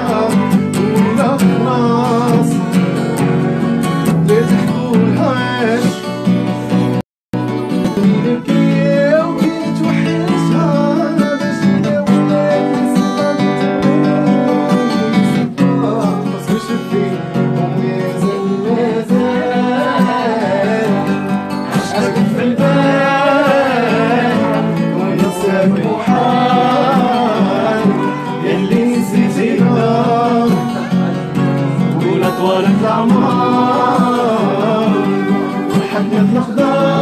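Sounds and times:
acoustic guitar chords: 0.0s - 37.0s
person singing: 0.0s - 37.0s.

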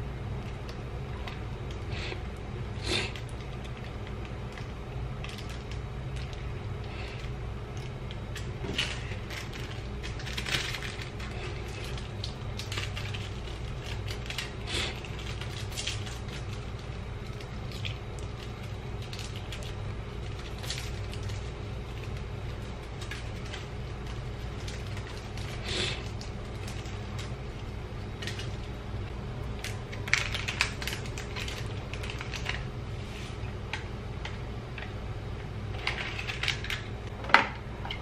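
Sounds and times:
steady low hum: 0.0s - 38.0s
plastic sachets crinkling and tearing: 2.8s - 28.8s, 29.6s - 32.7s, 35.8s - 36.9s.

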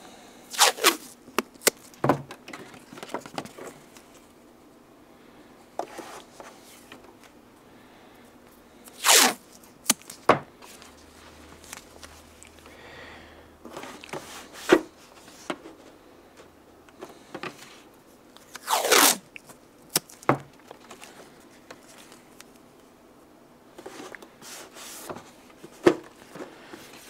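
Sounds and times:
masking tape pulled off roll: 0.5s - 1.8s, 8.9s - 10.2s, 18.4s - 19.3s.

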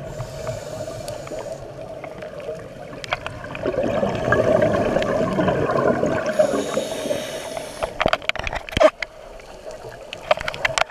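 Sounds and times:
regulator hiss: 0.0s - 1.7s, 6.3s - 8.1s
underwater bubbles gurgling: 0.0s - 10.9s.

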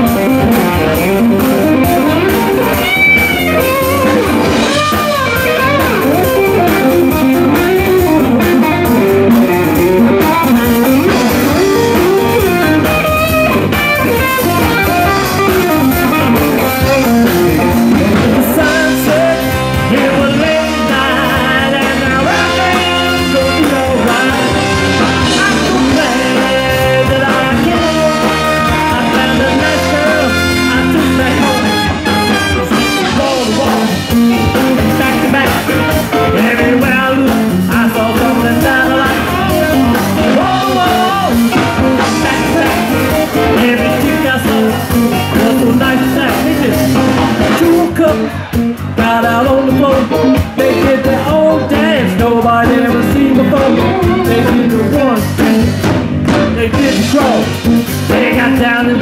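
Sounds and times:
electric guitar solo: 0.0s - 19.9s, 20.6s - 37.7s, 38.9s - 47.6s
bass and drums: 0.0s - 59.0s
trumpet section: 22.2s - 26.1s, 27.7s - 33.6s.

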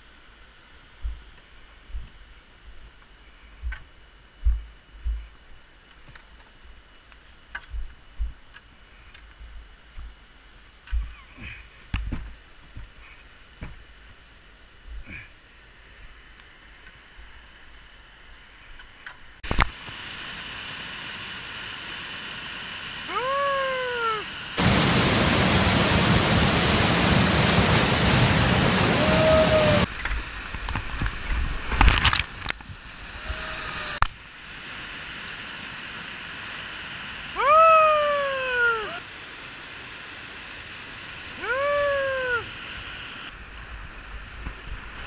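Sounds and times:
waterfall roaring: 19.5s - 43.2s
short high calls: 23.0s - 24.4s, 28.8s - 29.9s, 37.3s - 39.0s, 41.4s - 42.6s.

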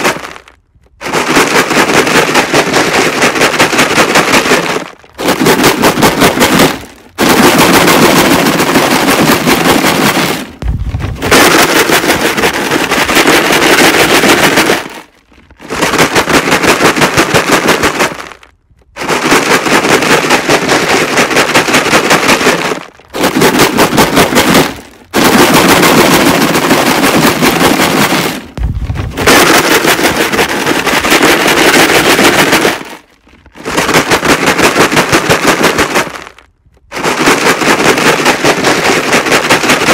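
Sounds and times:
rocks rattling in a plastic jug: 0.0s - 39.9s
dull thud: 10.4s - 11.6s, 28.5s - 29.4s.

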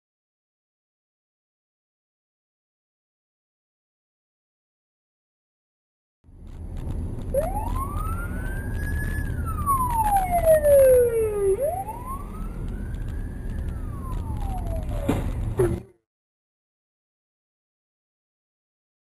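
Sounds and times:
road rumble: 6.3s - 16.0s
police siren wailing: 7.3s - 15.8s
car crash bang: 14.9s - 15.9s.

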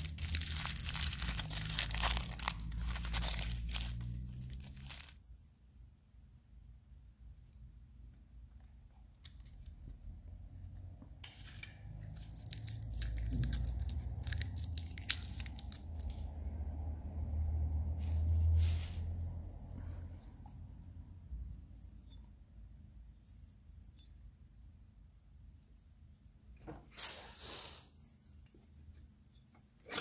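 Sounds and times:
low rumble: 12.8s - 21.3s.

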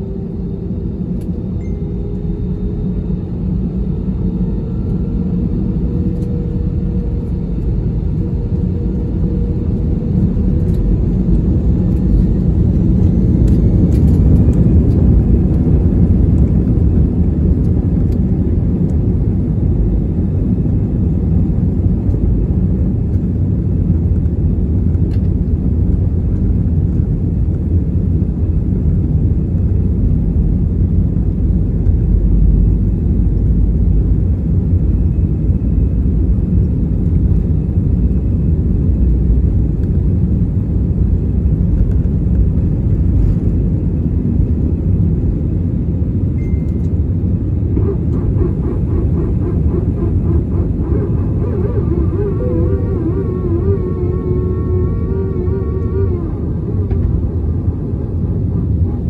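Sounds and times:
jet airliner rumbling while taxiing: 0.0s - 59.0s.

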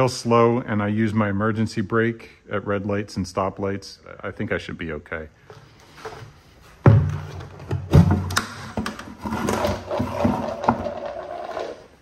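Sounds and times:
plastic scraping and rattling: 5.9s - 12.0s
heavy bucket thumps: 6.8s - 11.3s.

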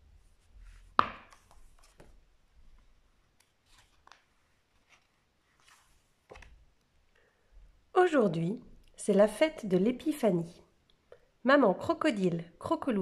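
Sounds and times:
paper pages rustling: 0.3s - 6.8s.

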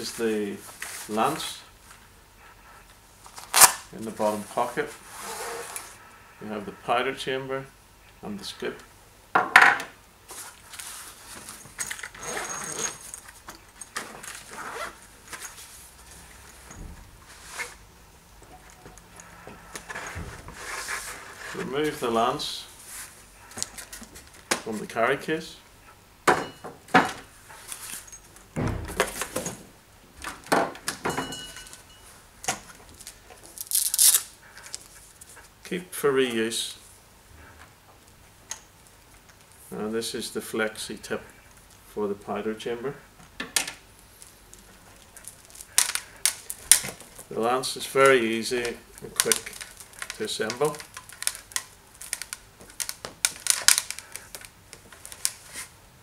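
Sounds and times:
fabric case scraping and rustling: 5.0s - 6.0s
plastic packaging crinkling: 32.9s - 35.3s, 44.1s - 47.3s, 48.1s - 55.7s.

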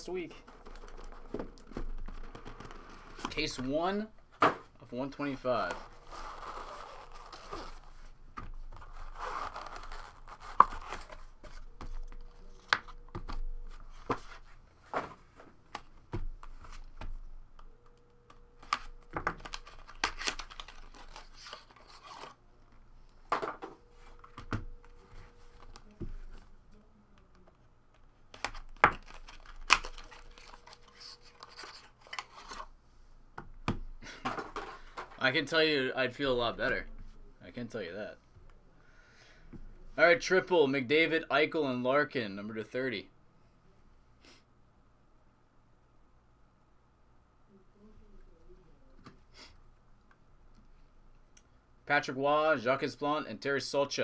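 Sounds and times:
paper wrappers rustling and tearing: 19.4s - 22.4s, 28.5s - 32.7s.

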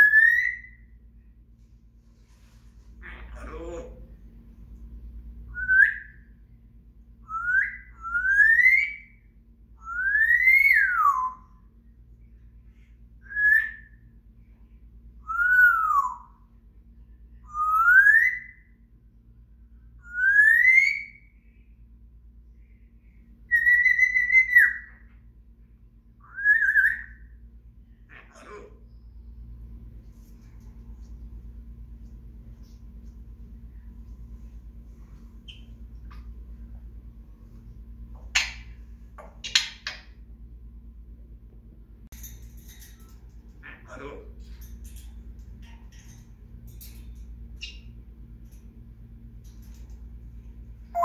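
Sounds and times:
parrot whistling: 0.0s - 0.8s, 23.5s - 25.0s.

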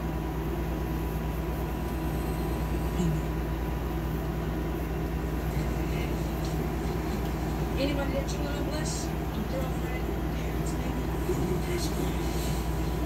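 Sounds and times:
low hum and hiss: 0.0s - 13.0s.

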